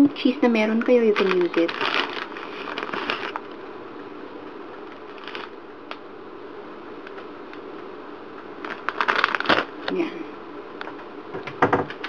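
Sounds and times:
room noise hiss: 0.0 - 12.0
cheese sprinkling rustles: 0.6 - 3.5.

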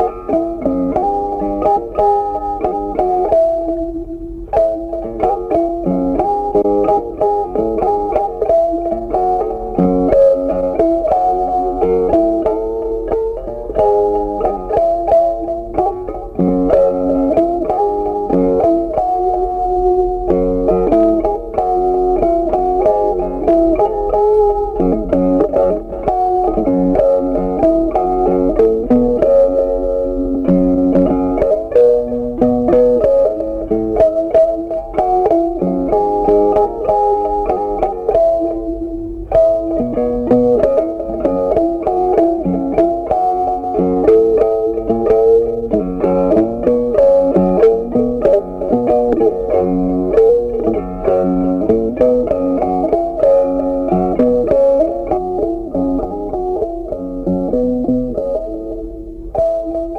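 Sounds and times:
plucked string melody: 0.0 - 59.9.

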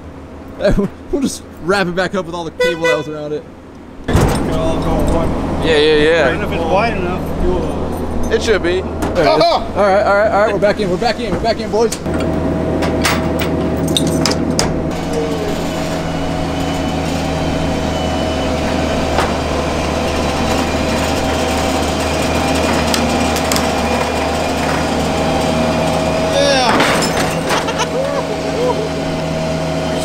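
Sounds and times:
floor sweeper engine humming: 14.8 - 26.7, 27.4 - 30.0
sharp metallic clanks: 26.6 - 27.8.

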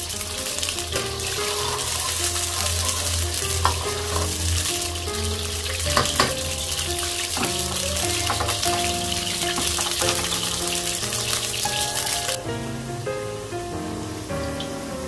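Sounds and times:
food sizzling in a pan: 0.0 - 12.4
sharp knocks: 5.9 - 6.6, 7.4 - 10.5.

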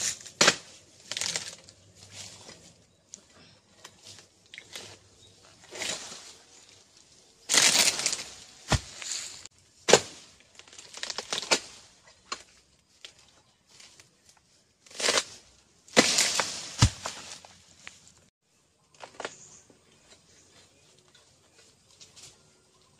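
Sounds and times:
sharp wood cracks: 0.0 - 1.7, 7.4 - 12.6, 14.8 - 17.5
frond rustling: 0.0 - 22.9
blade scraping and crunching: 14.9 - 17.6.

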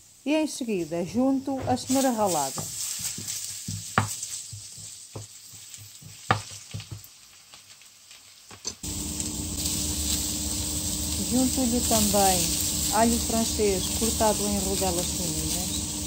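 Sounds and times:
onion sizzling in frying pan: 0.0 - 16.0
wooden spoon knocking pan: 2.5 - 7.1.

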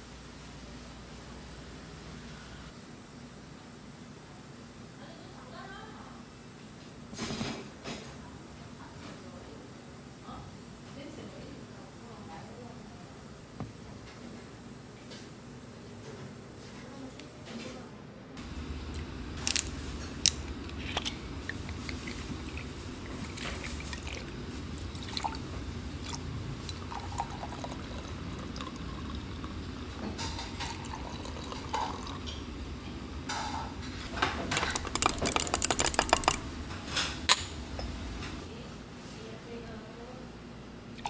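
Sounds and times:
steady low hum: 18.0 - 41.0
water dripping and pouring: 21.4 - 32.4.

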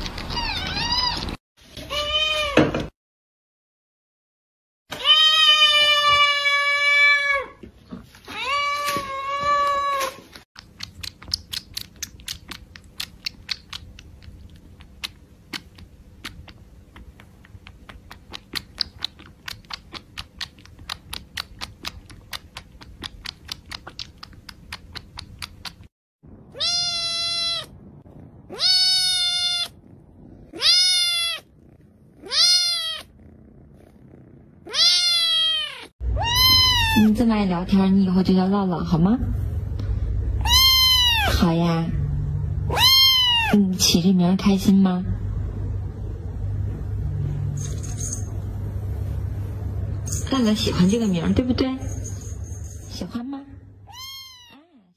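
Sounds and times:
kitten meowing: 0.3 - 2.6, 26.5 - 27.7, 28.5 - 31.5, 32.2 - 33.1, 34.6 - 37.1, 40.4 - 41.4, 42.7 - 43.6, 53.9 - 54.8
kitten suckling at bottle: 10.6 - 25.9.

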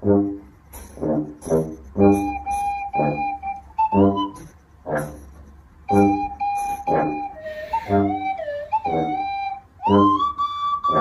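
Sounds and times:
music with steady beat: 0.6 - 9.2
held high melody: 0.7 - 11.0.

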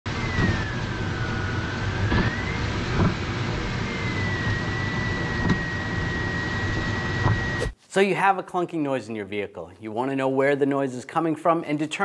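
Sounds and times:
high steady whine: 0.1 - 7.8
road and tyre rumble: 0.2 - 7.4.

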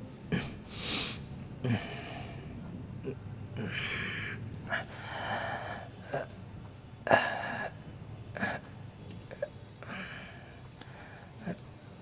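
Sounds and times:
man groaning sleepily: 1.6 - 6.4, 7.1 - 8.7.

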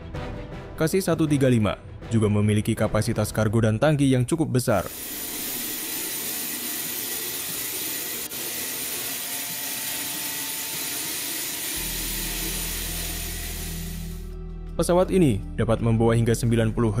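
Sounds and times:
jet engine rushing hiss: 4.9 - 14.2
low steady drone: 11.1 - 14.5.

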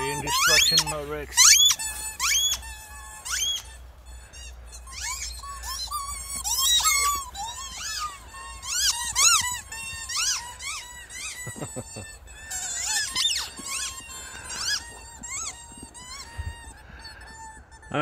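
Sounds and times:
squeaky dog toys squeaking: 0.0 - 18.0.

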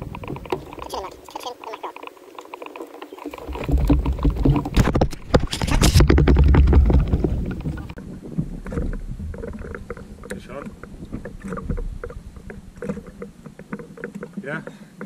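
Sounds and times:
camera handling rumble and knocks: 3.4 - 14.4.

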